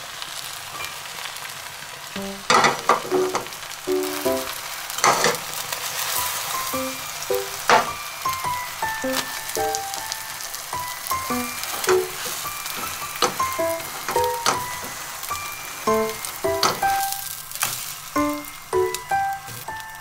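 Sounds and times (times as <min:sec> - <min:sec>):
eggs sizzling in a pan: 0:00.0 - 0:20.0
plucked background music: 0:02.2 - 0:04.6, 0:06.6 - 0:17.3, 0:18.2 - 0:20.0.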